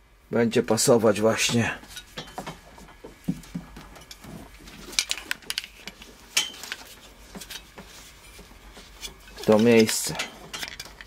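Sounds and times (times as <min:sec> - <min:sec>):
cables and metal clips clicking: 0:04.9 - 0:07.6, 0:09.4 - 0:11.0.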